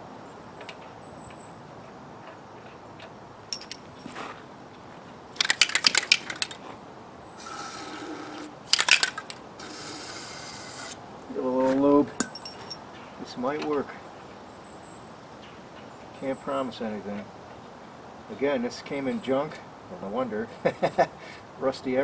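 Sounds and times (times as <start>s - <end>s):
aerosol can ball rattling: 5.4s - 6.6s, 7.4s - 10.9s.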